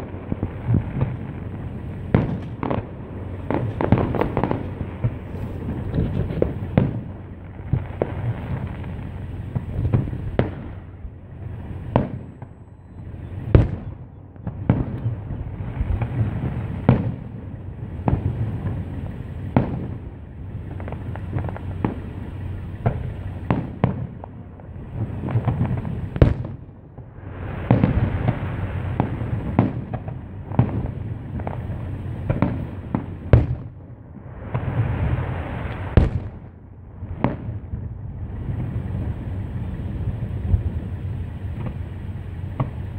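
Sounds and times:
continuous low rumble: 0:00.0 - 0:42.9
fireworks bursting with sharp bangs: 0:00.0 - 0:42.9.

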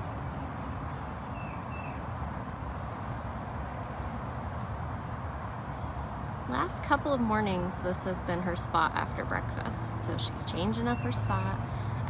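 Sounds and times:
wild birds chirping: 0:00.0 - 0:06.6, 0:10.0 - 0:12.0
low background noise: 0:00.0 - 0:12.0.

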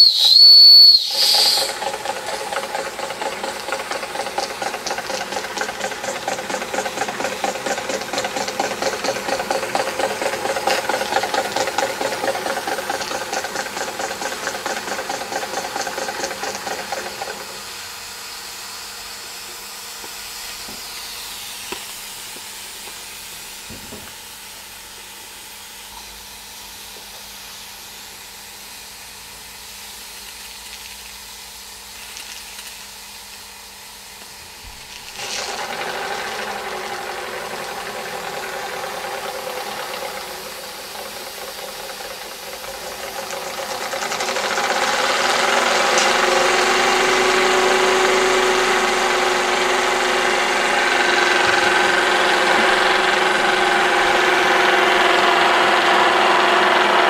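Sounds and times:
steam engine chuffing: 0:01.0 - 0:23.8, 0:35.2 - 0:57.0.

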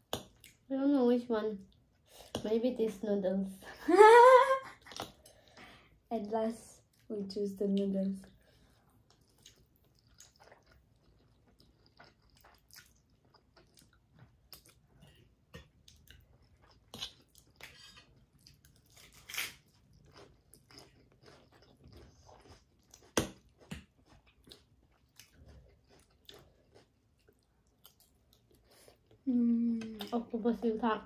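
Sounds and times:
chewing and slurping noodles: 0:08.6 - 0:29.2
crunchy lettuce bites: 0:18.7 - 0:23.9.

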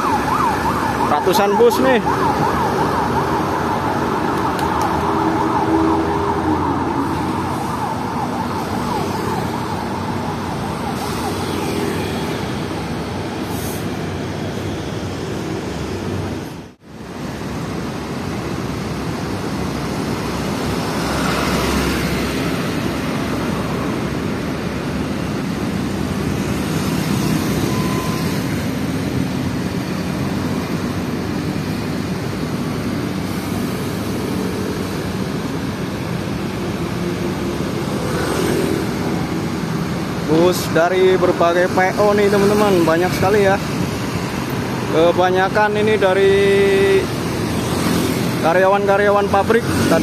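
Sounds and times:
traffic noise: 0:00.0 - 0:50.0
vehicles passing close: 0:00.0 - 0:50.0
motorbike: 0:18.0 - 0:50.0.

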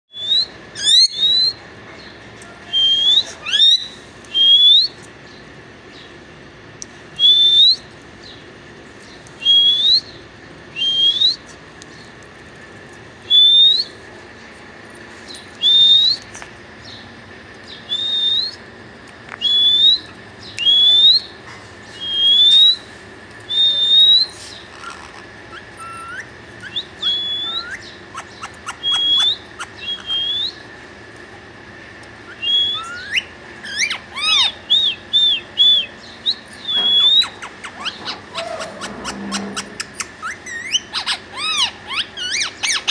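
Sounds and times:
parakeet whistling calls: 0:00.1 - 0:01.6, 0:02.7 - 0:05.0, 0:07.2 - 0:07.9, 0:09.4 - 0:11.6, 0:13.2 - 0:14.0, 0:15.6 - 0:17.0, 0:17.7 - 0:18.7, 0:19.4 - 0:22.9, 0:23.5 - 0:30.7, 0:32.2 - 0:42.9
parakeet clicking chatter: 0:23.8 - 0:31.3, 0:32.0 - 0:42.9.

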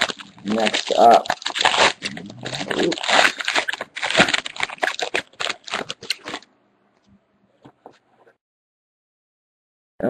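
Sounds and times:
foil wrapper tearing and crinkling: 0:00.0 - 0:06.5.

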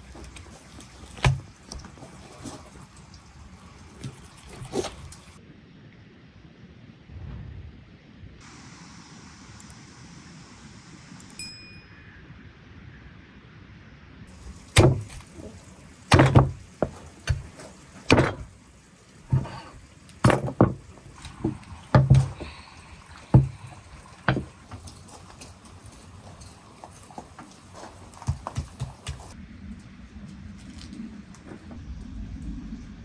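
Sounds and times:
faint rain hiss: 0:00.0 - 0:33.0
bell-like chime: 0:11.4 - 0:12.2
cleaver chopping on wooden board: 0:14.8 - 0:15.2.

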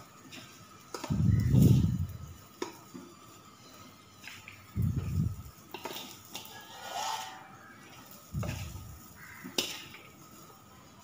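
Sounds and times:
metal spatula scraping a wok: 0:04.9 - 0:10.5.

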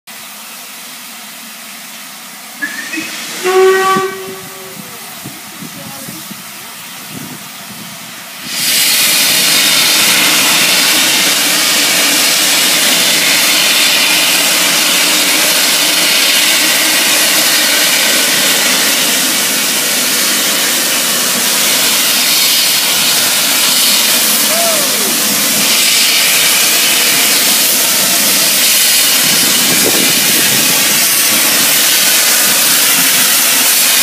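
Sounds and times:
steam locomotive hissing steam: 0:00.1 - 0:34.0.

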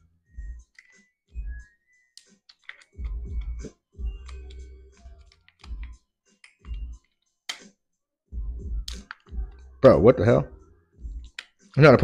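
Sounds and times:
plastic and metal clicks and scrapes: 0:02.2 - 0:03.6.

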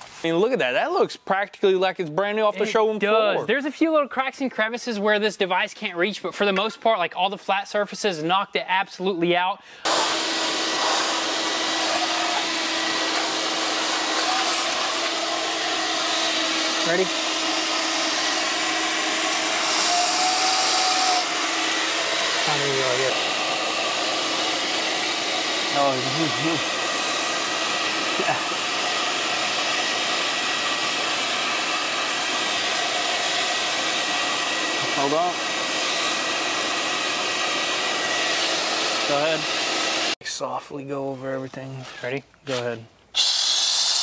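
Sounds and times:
cleaning device air rushing: 0:09.8 - 0:40.2, 0:43.2 - 0:44.0
vacuum motor running: 0:09.8 - 0:40.2.

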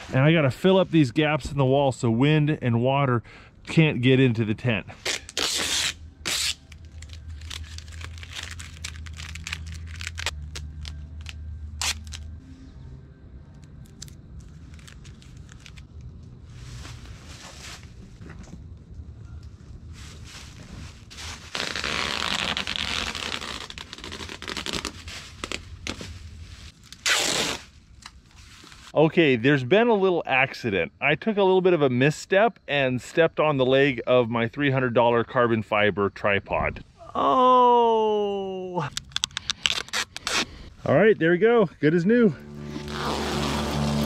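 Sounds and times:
duct tape tearing: 0:05.0 - 0:12.3, 0:21.5 - 0:26.0, 0:26.8 - 0:28.2, 0:39.0 - 0:40.5, 0:42.7 - 0:44.0
duct tape ripping: 0:05.0 - 0:12.4, 0:13.8 - 0:16.0, 0:21.5 - 0:26.1, 0:26.8 - 0:28.2, 0:38.9 - 0:40.5, 0:42.6 - 0:44.0.

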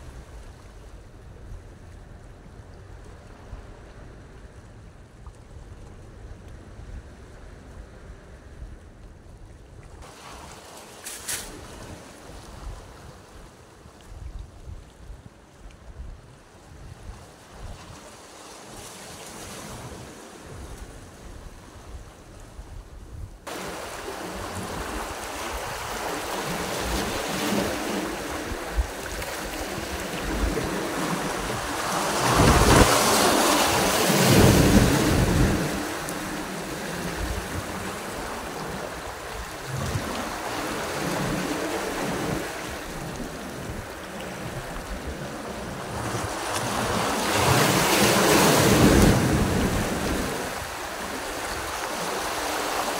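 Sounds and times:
waves breaking over rocks: 0:09.9 - 0:14.8, 0:23.4 - 0:52.9.

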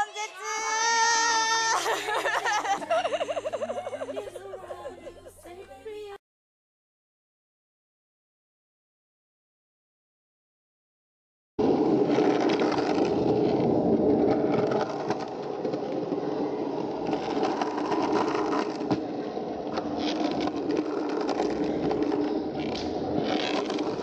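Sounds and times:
skateboard wheels rolling: 0:11.6 - 0:24.0.

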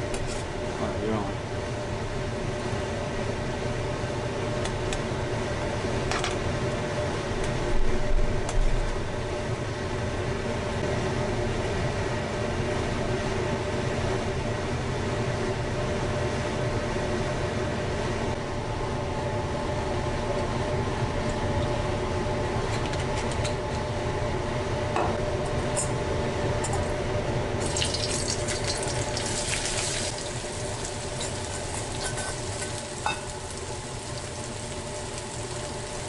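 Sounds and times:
steady mechanical hum: 0:00.0 - 0:36.0
broth bubbling in a pot: 0:27.6 - 0:36.0.

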